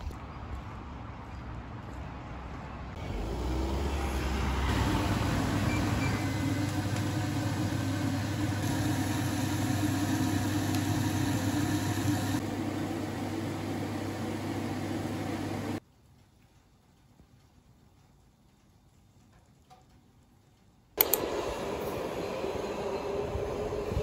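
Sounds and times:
machine hum with hiss: 3.0s - 15.8s, 21.0s - 24.0s.

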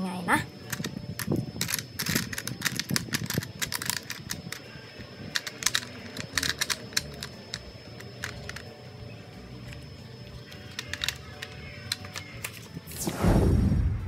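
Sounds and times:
plastic pieces clicking and clattering: 0.6s - 4.7s, 5.3s - 8.8s, 9.6s - 12.7s.

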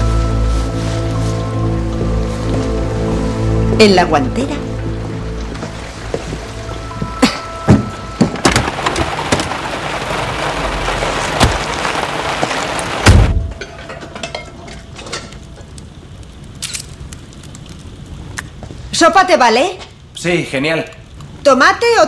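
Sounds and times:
heavy rain pouring: 0.0s - 22.0s
scattered knocks: 7.0s - 9.8s
loud low thump: 13.0s - 13.6s.

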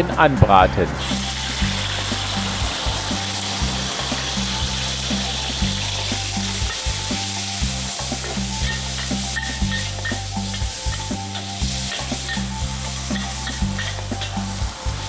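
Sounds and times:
chicken sizzling in a wok: 1.0s - 15.0s
metal spatula scraping a wok: 5.8s - 14.6s.

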